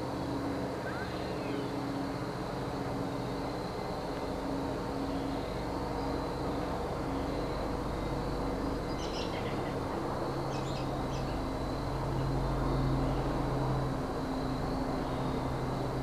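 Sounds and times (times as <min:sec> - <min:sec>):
propeller plane engine droning: 0:00.0 - 0:16.0
bird chirps: 0:08.9 - 0:09.8, 0:10.5 - 0:11.4.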